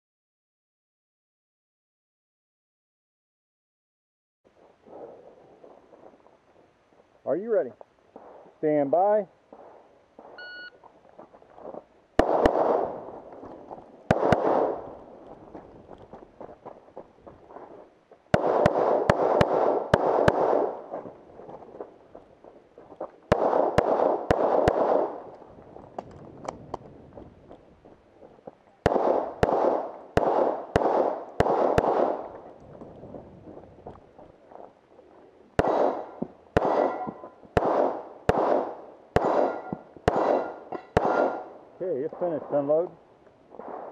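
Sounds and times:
electronic timer beep: 10.4s - 10.8s
pistol shots echoing: 12.2s - 13.2s, 14.1s - 15.0s, 18.3s - 21.1s, 23.3s - 25.3s, 28.8s - 32.3s, 35.6s - 41.6s
steel targets ringing: 36.7s - 37.3s, 39.2s - 41.5s.

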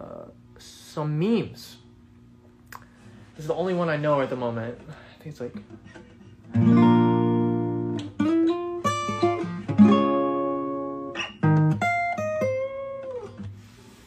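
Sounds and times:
acoustic guitar playing: 3.0s - 14.0s.

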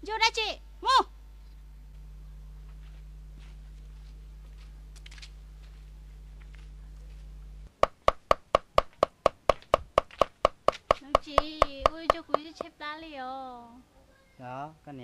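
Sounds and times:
low hum: 0.0s - 10.7s
knife chopping on wooden board: 7.8s - 12.7s.

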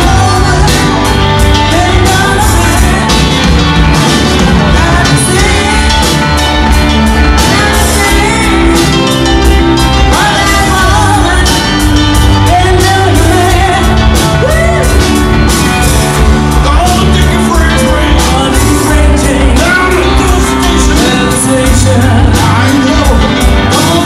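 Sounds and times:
bass guitar: 0.0s - 24.0s
drum beat: 0.0s - 24.0s
electric guitars: 0.0s - 24.0s
lead singer singing: 0.0s - 24.0s.

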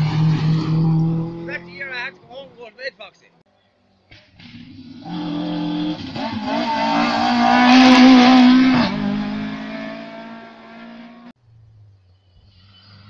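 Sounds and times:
rally car engine passing by: 0.0s - 2.1s, 4.4s - 11.3s.

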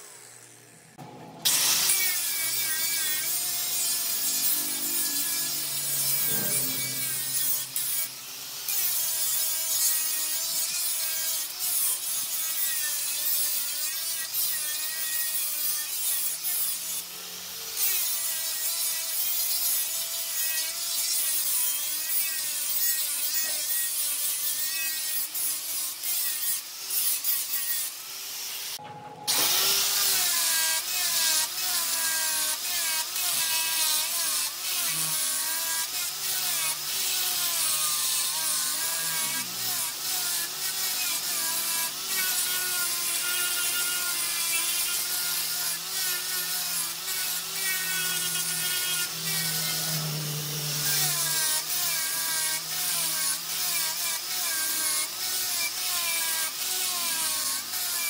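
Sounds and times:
wood turning on a lathe: 3.9s - 8.2s, 38.4s - 57.9s.

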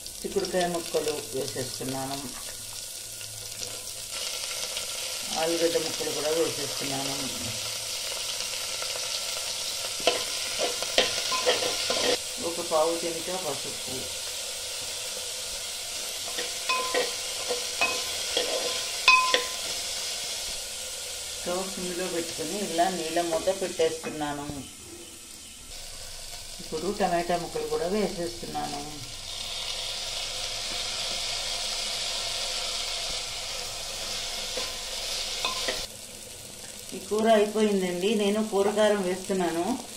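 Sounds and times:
food sizzling in oil: 0.0s - 39.9s
spoon scraping and clinking pan: 10.0s - 12.2s, 16.3s - 19.7s, 35.4s - 35.9s.

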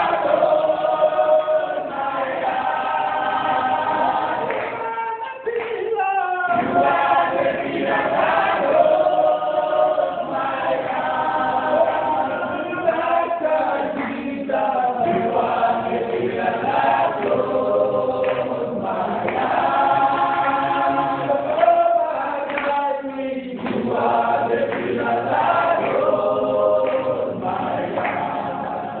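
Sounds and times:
choir singing in harmony: 0.0s - 5.0s, 6.2s - 29.0s.

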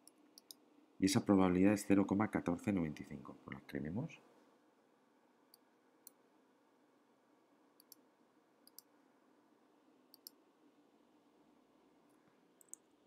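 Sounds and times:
computer mouse clicks: 0.0s - 0.6s, 7.8s - 8.0s, 8.6s - 8.9s, 10.1s - 10.4s, 12.6s - 13.0s
low room hum: 0.0s - 13.0s.

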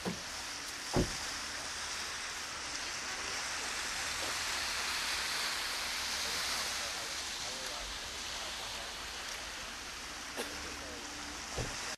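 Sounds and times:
steady rushing outdoor noise: 0.0s - 11.9s
low thump: 1.0s - 1.2s, 11.6s - 11.8s.

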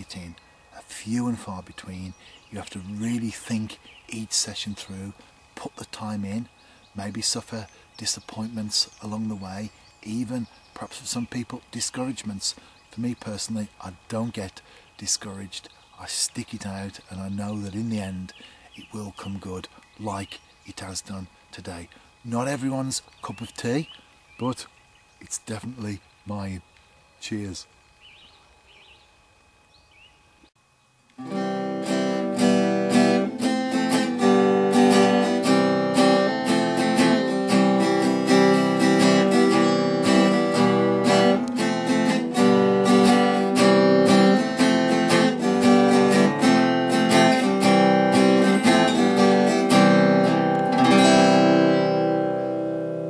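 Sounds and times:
strummed acoustic guitar: 0.0s - 6.4s, 31.2s - 53.0s.

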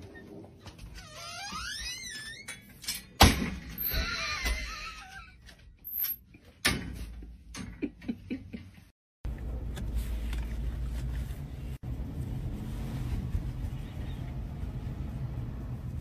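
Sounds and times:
steady low rumble: 9.3s - 16.0s.

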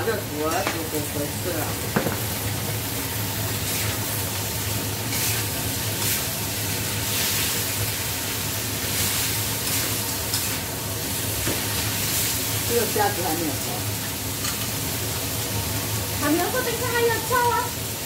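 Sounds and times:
food sizzling in a wok: 0.0s - 18.0s
metal spatula scraping wok: 5.0s - 6.3s.

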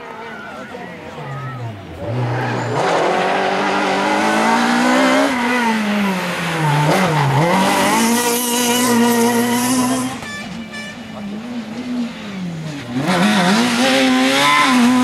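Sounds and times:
rally car engine revving: 0.0s - 15.0s.

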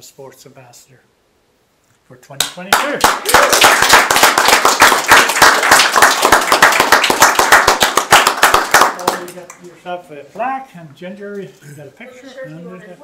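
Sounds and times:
people clapping: 2.4s - 9.7s.

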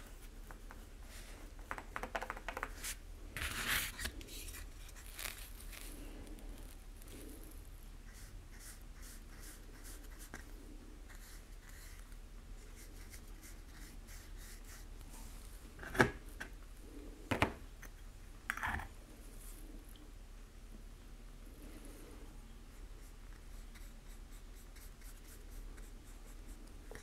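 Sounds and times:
paintbrush scratchy strokes: 2.8s - 10.5s.

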